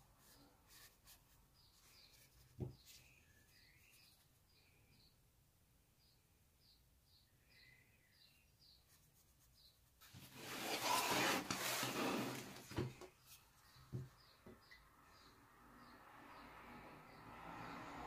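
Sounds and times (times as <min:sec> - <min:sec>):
sketchbook rustling: 0:00.0 - 0:04.4, 0:08.9 - 0:14.1
small bird chirping: 0:00.2 - 0:05.2, 0:06.0 - 0:10.1, 0:13.1 - 0:16.5.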